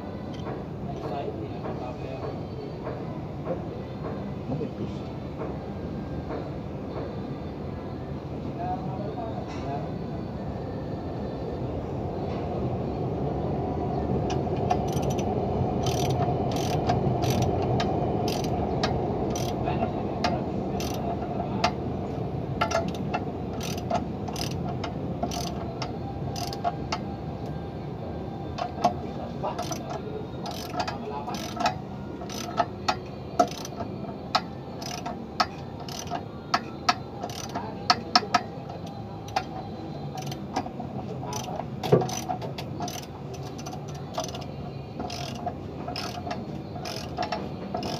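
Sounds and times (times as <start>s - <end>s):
ratchet wrench clicking: 14.7s - 18.5s, 19.3s - 19.6s, 20.8s - 21.0s, 22.6s - 25.7s, 26.4s - 26.7s, 29.6s - 39.5s, 40.2s - 40.4s, 41.3s - 47.9s.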